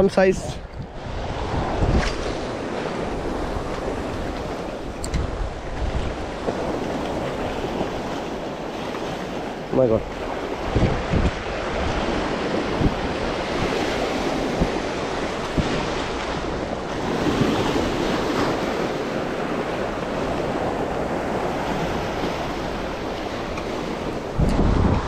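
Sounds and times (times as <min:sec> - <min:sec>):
wind gusts on microphone: 0:00.0 - 0:25.0.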